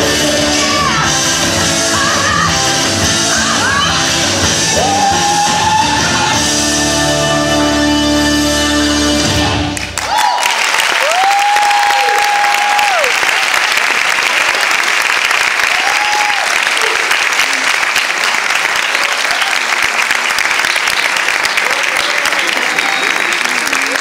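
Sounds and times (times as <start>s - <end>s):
dance music: 0.0s - 9.8s
high held cheers: 4.7s - 6.4s, 9.8s - 24.0s
audience applause: 9.7s - 24.0s.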